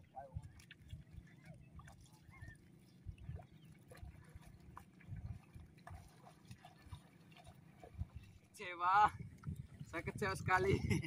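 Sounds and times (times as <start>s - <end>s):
wind on microphone: 0.0s - 7.0s, 7.8s - 8.4s, 9.0s - 11.0s
feet splashing in shallow water: 0.0s - 11.0s.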